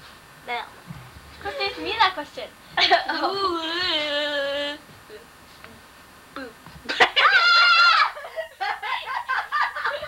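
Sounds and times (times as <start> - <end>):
child giggling: 6.9 - 10.0.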